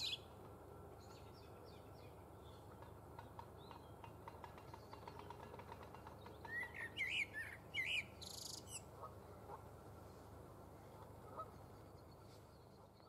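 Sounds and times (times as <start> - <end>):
blackbird singing: 6.3 - 8.8.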